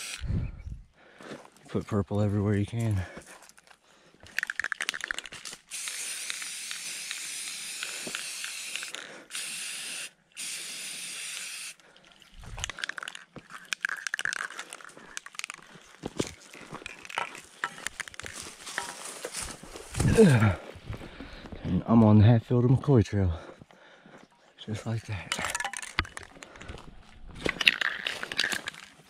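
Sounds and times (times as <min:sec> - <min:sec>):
spray paint can hissing: 0:00.0 - 0:00.2, 0:04.5 - 0:11.8
footsteps through brush: 0:02.8 - 0:04.4, 0:14.5 - 0:21.8.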